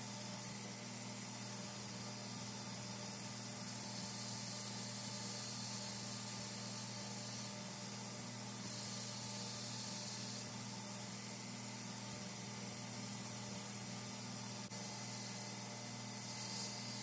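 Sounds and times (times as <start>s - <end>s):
belt grinder grinding steel: 8.6s - 10.5s, 16.2s - 17.0s.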